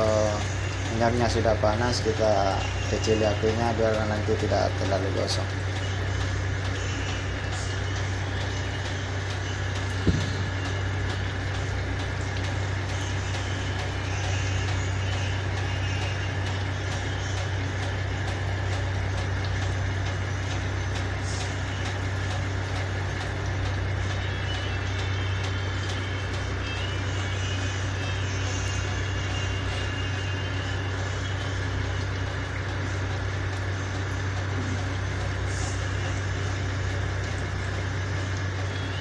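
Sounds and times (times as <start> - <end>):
low engine hum: 5.6 - 25.3
fritters sizzling in oil: 5.8 - 39.0.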